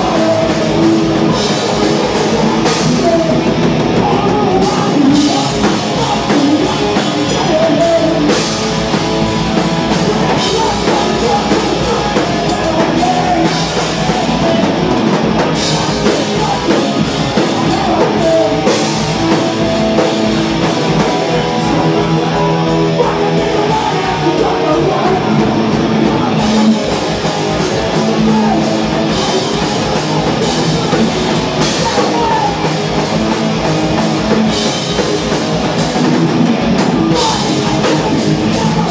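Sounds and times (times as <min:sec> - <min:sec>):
distorted electric guitars: 0:00.0 - 0:38.9
drum kit: 0:00.0 - 0:38.9
person singing: 0:00.0 - 0:38.9.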